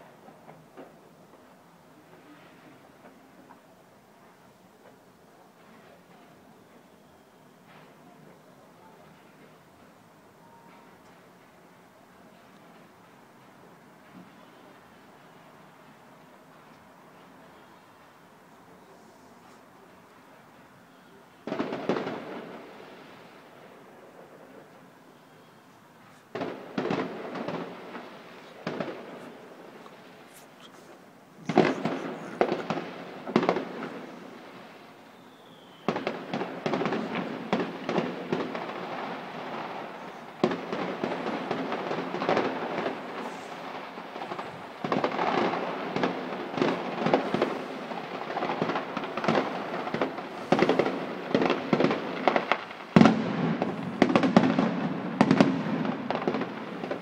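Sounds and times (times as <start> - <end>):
firework crackling: 21.3 - 57.0
distant firework bangs: 21.4 - 25.3, 26.1 - 57.0.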